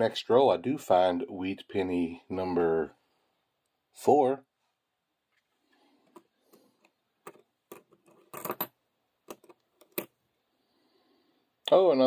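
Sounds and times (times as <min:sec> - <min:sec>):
coins clicking together: 0:07.2 - 0:08.7.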